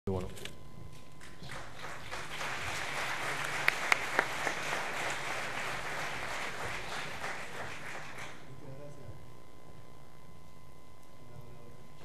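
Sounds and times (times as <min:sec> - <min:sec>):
sharp close claps: 0:01.2 - 0:08.4
audience applauding: 0:01.2 - 0:08.5.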